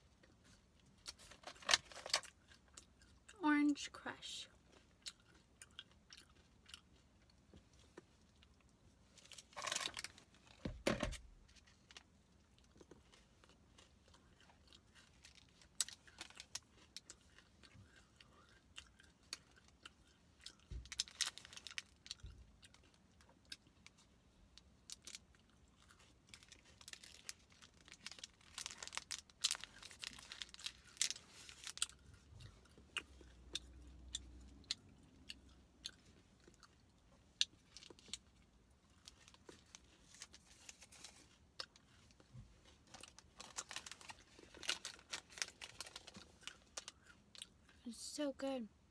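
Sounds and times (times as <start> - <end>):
chewing and crunching candy: 0.0 - 10.7, 11.4 - 48.1
foil wrapper crinkling: 26.3 - 31.8, 42.9 - 46.9.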